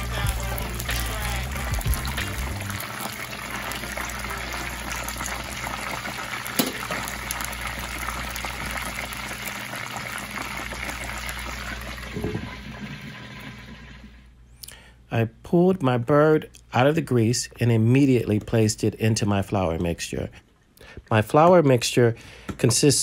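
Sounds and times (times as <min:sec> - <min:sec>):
oil popping: 0:00.0 - 0:12.7
oil sizzling and crackling: 0:00.0 - 0:14.4.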